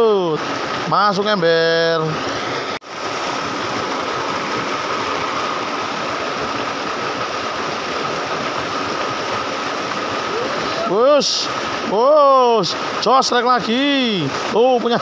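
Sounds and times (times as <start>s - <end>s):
stream water rushing: 0.0s - 15.0s.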